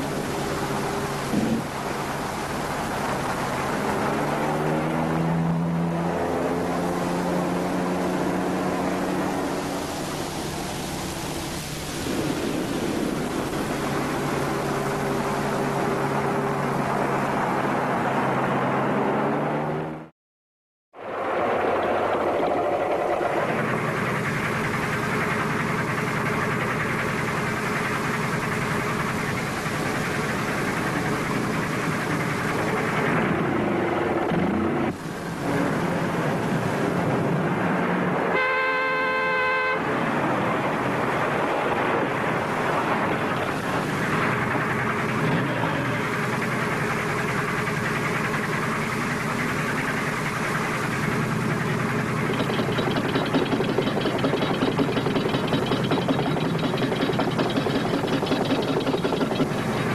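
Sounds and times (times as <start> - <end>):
car horn honk: 38.3 - 39.9.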